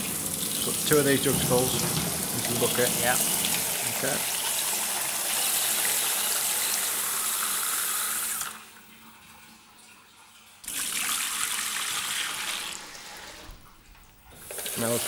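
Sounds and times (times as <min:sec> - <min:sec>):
water running from tap into jug: 0:00.0 - 0:13.6, 0:14.3 - 0:15.0.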